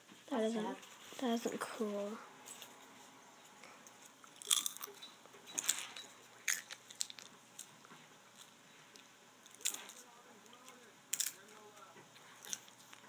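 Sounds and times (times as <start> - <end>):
person crunching and chewing food: 4.0 - 13.0.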